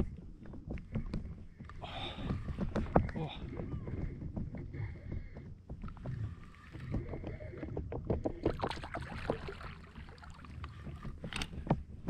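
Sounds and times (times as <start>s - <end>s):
fish splashing: 8.5s - 11.0s.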